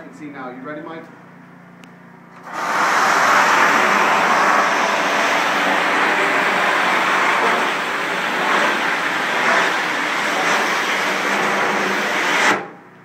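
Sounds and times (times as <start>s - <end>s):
pressure washer spray hissing: 2.4s - 12.6s.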